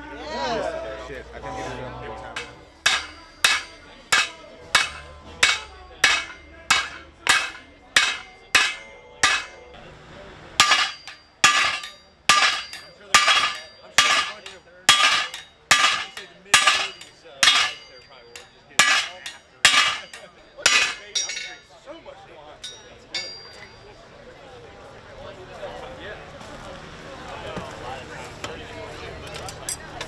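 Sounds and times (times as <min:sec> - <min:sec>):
hammer striking metal on anvil: 0:02.3 - 0:09.8, 0:10.6 - 0:21.7, 0:22.6 - 0:23.9.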